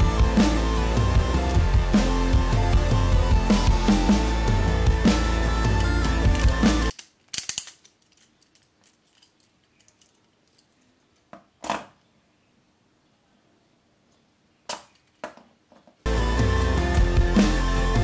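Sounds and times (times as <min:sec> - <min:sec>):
background music: 0:00.0 - 0:06.9, 0:16.1 - 0:18.0
clicks of plastic parts handled: 0:06.4 - 0:11.9.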